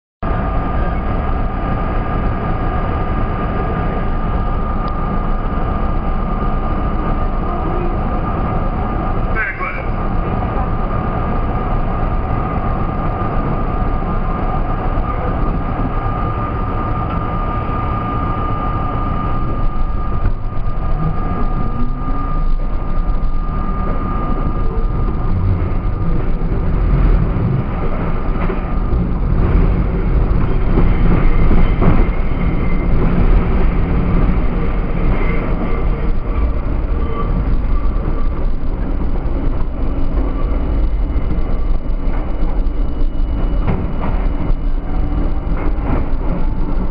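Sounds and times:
subway train accelerating: 0.2s - 46.9s
wheels rumbling on track: 0.2s - 46.9s
train motor whine rising: 10.3s - 46.9s.

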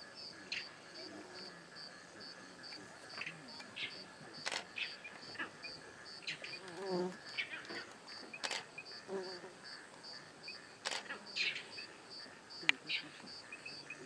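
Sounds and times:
insect chirping: 0.2s - 14.0s
sharp clicks: 8.4s - 8.6s.

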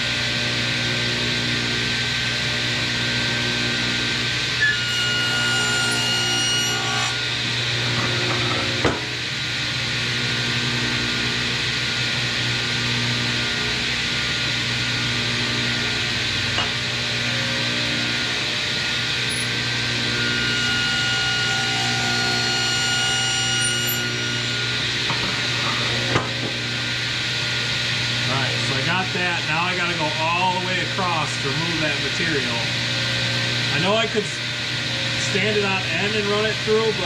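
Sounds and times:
table saw motor hum: 0.0s - 37.0s
saw blade cutting wood: 4.6s - 7.2s, 19.2s - 26.0s.

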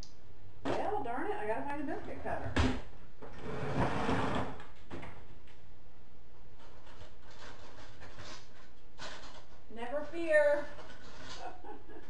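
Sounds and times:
scraping rustle: 6.6s - 11.7s.

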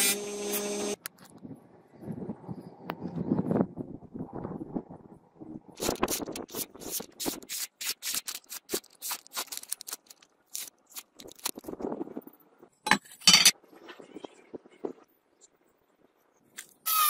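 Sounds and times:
blade slicing paper: 5.8s - 11.6s.

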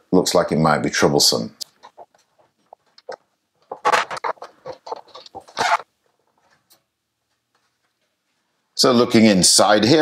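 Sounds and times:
plastic case scraping and knocking: 3.7s - 5.8s.

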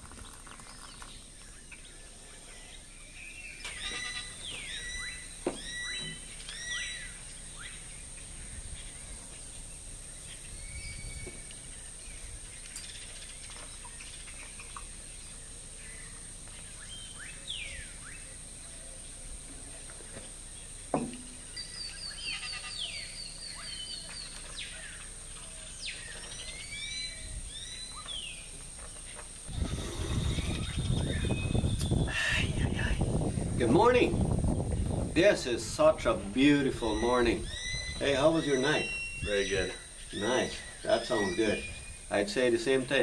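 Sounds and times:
wild birds chirping and calling: 0.0s - 43.0s
bird trill: 2.7s - 9.1s, 21.4s - 28.5s, 36.7s - 42.2s
sharp knock: 20.9s - 21.3s.

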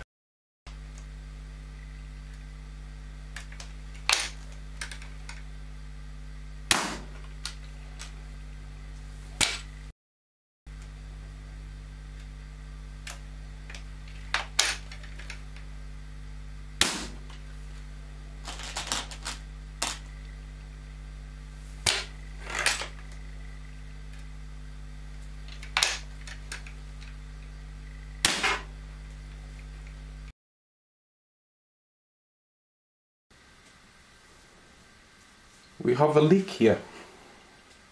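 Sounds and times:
steady low hum: 0.7s - 9.9s, 10.7s - 30.3s, 33.4s - 37.9s
air rifle shots: 6.7s - 7.2s, 16.8s - 17.3s, 28.2s - 28.7s.

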